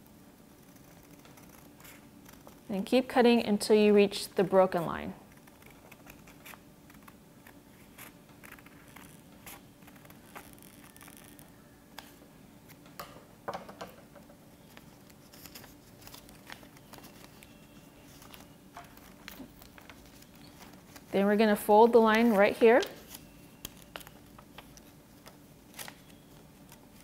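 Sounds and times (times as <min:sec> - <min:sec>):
paper rustling: 0:14.6 - 0:27.0.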